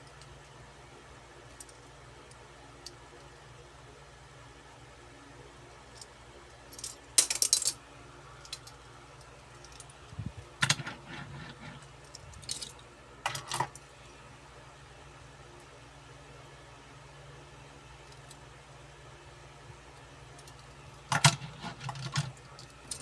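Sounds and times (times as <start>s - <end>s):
metal toy cars clinking: 6.7s - 7.8s, 10.6s - 13.8s, 20.4s - 23.0s.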